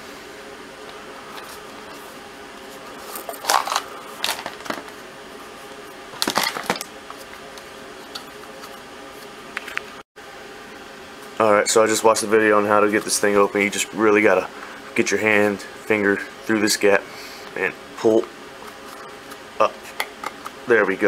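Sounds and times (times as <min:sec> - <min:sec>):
steady background hum: 0:00.0 - 0:21.0.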